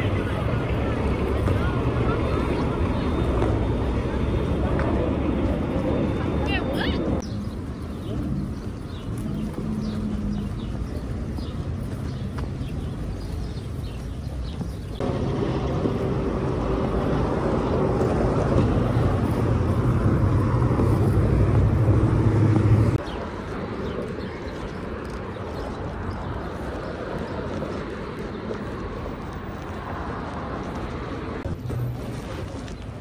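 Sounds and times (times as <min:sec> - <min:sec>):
street traffic: 0:00.0 - 0:33.0
vehicle engine humming: 0:00.0 - 0:33.0.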